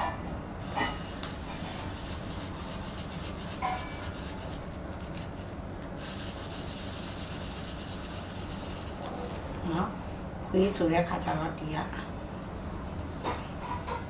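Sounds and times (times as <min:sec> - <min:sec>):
steady low hum: 0:00.0 - 0:14.0
felt-tip pen scratching on paper: 0:00.9 - 0:09.1.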